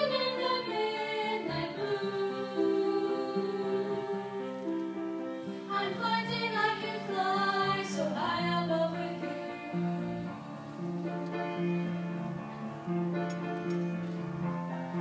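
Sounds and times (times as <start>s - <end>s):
carol sung with instruments: 0.0s - 5.0s, 5.6s - 11.3s.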